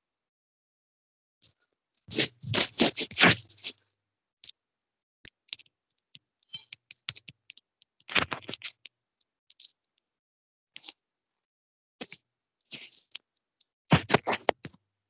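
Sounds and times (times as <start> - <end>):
scratchy scrapes: 2.1 - 3.8, 12.7 - 13.2.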